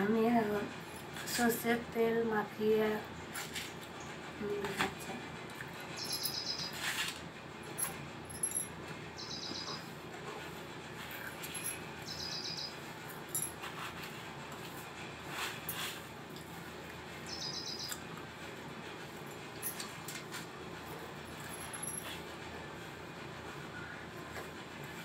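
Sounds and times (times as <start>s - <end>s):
bird trilling: 9.2s - 9.8s, 12.1s - 12.7s, 17.3s - 18.0s.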